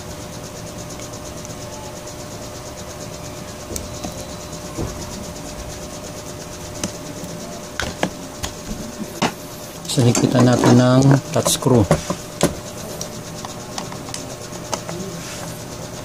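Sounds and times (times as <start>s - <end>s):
faint hum: 0.0s - 16.0s
steady hiss: 0.0s - 16.0s.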